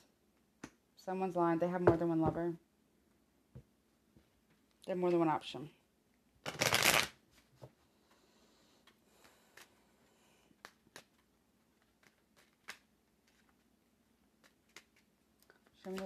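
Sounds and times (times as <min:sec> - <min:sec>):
cards clicking and tapping: 0:10.6 - 0:13.6, 0:14.4 - 0:16.0.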